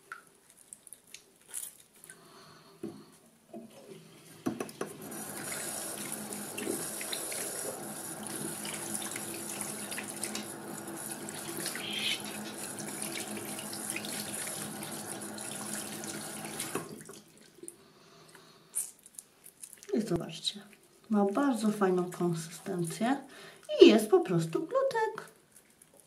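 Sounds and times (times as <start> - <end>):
water running from sink tap: 4.7 - 17.3
hands rinsing under water: 5.1 - 17.2.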